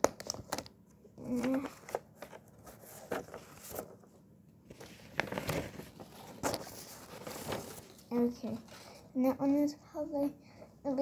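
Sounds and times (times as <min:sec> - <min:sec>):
paper rustling: 0:00.2 - 0:04.1, 0:04.7 - 0:09.0.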